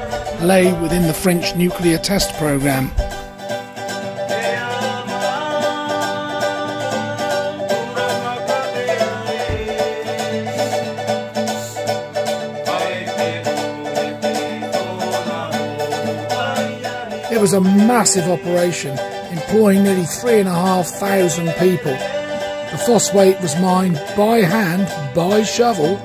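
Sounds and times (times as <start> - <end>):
plucked string background music: 0.0 - 26.0.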